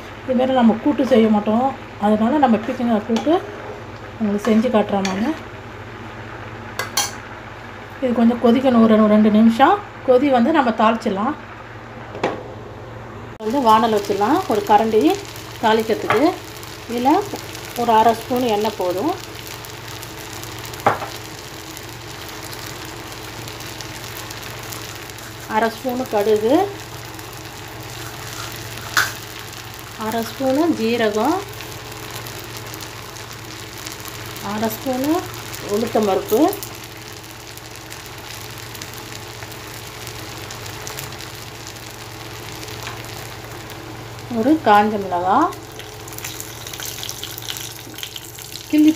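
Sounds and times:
oil sizzling with crackling seeds: 0:00.0 - 0:11.8, 0:13.3 - 0:48.9
faint steady hum: 0:00.0 - 0:48.9
gas stove hissing: 0:00.0 - 0:48.9.

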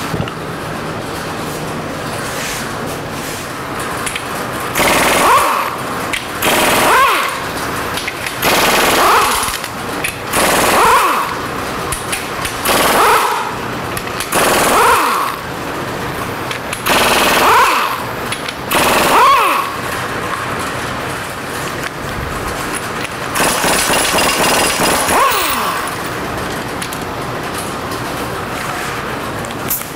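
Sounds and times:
impact wrench hammering: 0:04.8 - 0:15.4, 0:16.5 - 0:19.8, 0:23.0 - 0:26.1.

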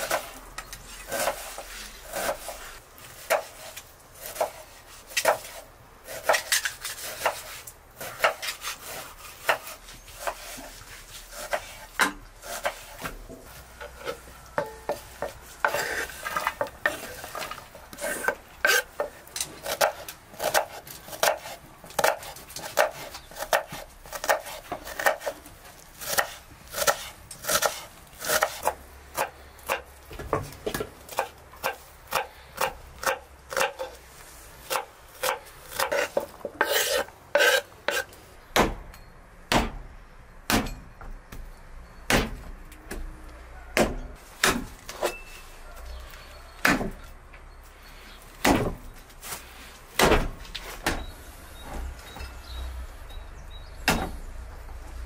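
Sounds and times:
knife chopping on wooden board: 0:18.2 - 0:25.4.

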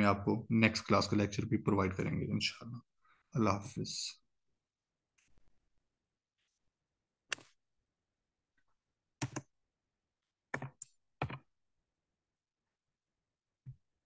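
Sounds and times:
computer mouse clicks: 0:07.3 - 0:07.6, 0:09.2 - 0:09.5.

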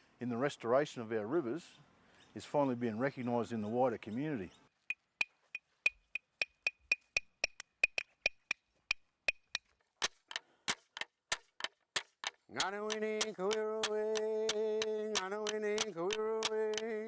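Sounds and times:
clapsticks clicking beat: 0:05.9 - 0:17.0.

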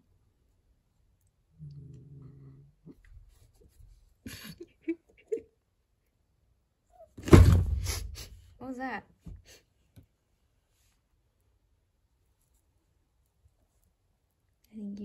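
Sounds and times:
cat low vocal sound: 0:01.5 - 0:03.1.

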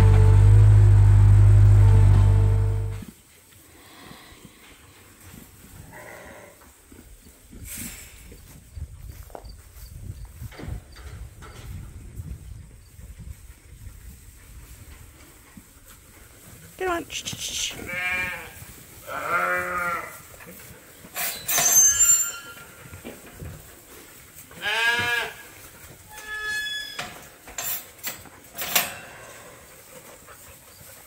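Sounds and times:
sheep bleating: 0:17.6 - 0:20.2, 0:24.6 - 0:25.4
metal clanks and rattles: 0:27.0 - 0:29.3.

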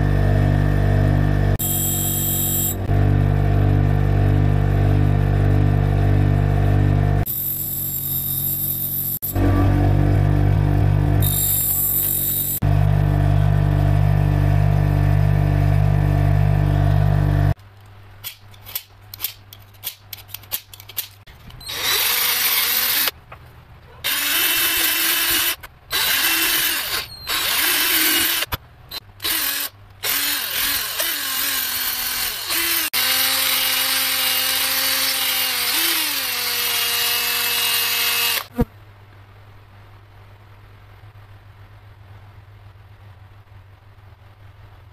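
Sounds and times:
bench grinder motor running: 0:00.0 - 0:17.5, 0:21.7 - 0:23.1, 0:24.1 - 0:38.5
cordless drill boring wood: 0:01.6 - 0:02.8, 0:21.7 - 0:23.1, 0:24.0 - 0:28.5, 0:29.2 - 0:38.5.

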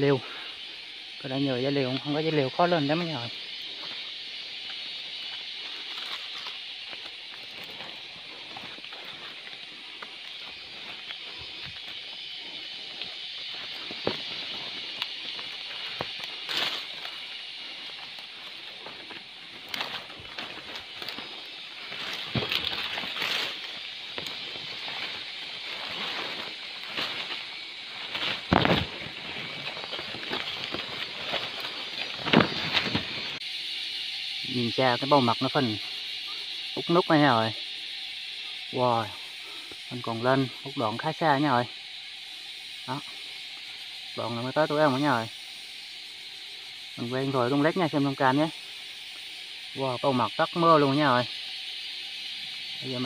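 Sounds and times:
forest insects droning: 0:00.0 - 0:53.0
steady high hiss: 0:00.0 - 0:53.0
rustles and taps on bark: 0:03.7 - 0:33.3
crackles and knocks: 0:03.8 - 0:33.4.

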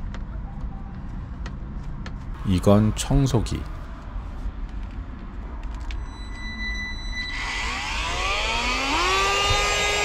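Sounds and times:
cordless vacuum cleaner running: 0:07.6 - 0:10.0.

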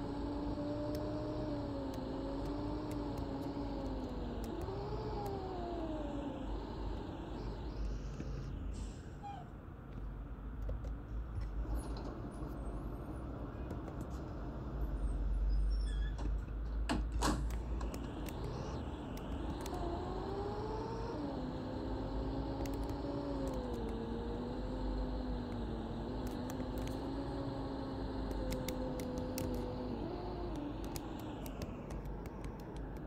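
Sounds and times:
rising whine: 0:00.0 - 0:09.4, 0:17.5 - 0:33.0
bus engine rumble: 0:00.0 - 0:33.0.

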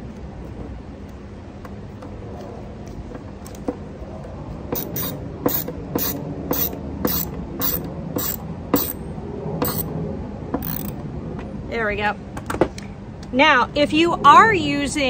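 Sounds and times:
screwdriver clicking: 0:04.8 - 0:09.0, 0:09.6 - 0:09.9, 0:10.6 - 0:10.9.

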